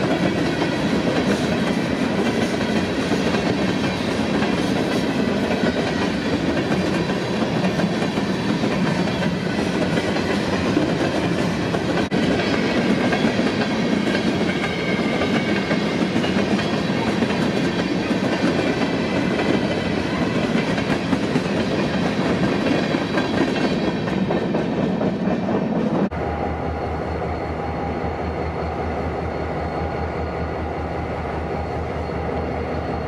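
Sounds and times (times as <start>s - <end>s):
freight train clickety-clack: 0.0s - 26.2s.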